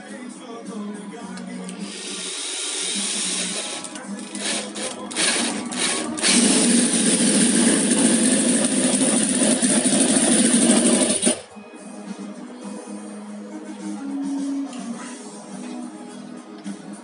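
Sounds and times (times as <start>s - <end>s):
electric drill cranking engine: 1.8s - 11.5s
model engine running at high speed: 1.8s - 11.5s.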